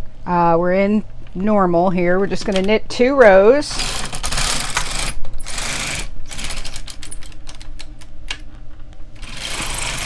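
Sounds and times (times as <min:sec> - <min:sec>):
knitting machine carriage clicking: 0:09.2 - 0:10.0.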